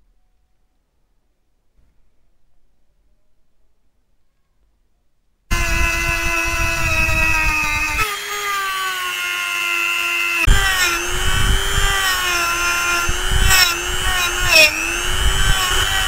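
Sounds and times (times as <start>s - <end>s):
rotary tool motor whine: 5.5s - 16.0s
wire brush scrubbing metal: 9.7s - 16.0s.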